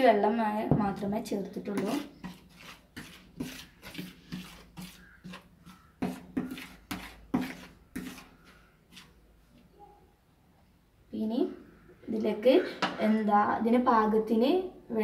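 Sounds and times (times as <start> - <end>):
metal spoon scraping ceramic plate: 1.7 - 9.1.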